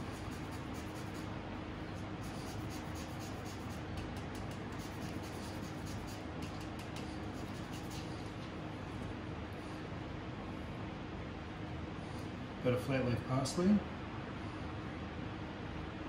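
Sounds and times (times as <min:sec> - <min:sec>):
grater rasping citrus zest: 0:00.0 - 0:01.4, 0:02.0 - 0:08.3
steady low hum: 0:00.0 - 0:16.0.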